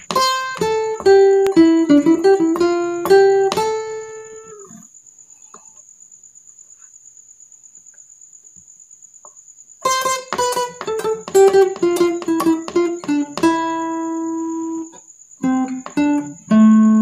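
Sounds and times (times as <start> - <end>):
acoustic guitar melody: 0.0 - 4.7, 9.8 - 17.0.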